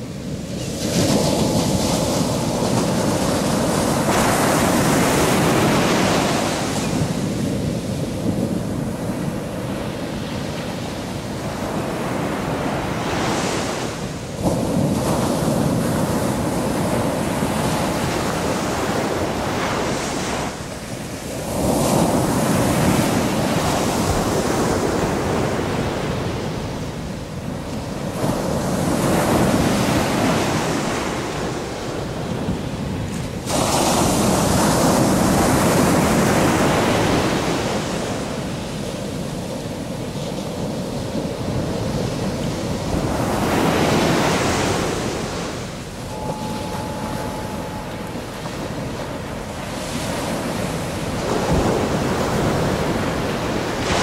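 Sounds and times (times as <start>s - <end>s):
ocean surf breaking: 41.3s - 54.0s.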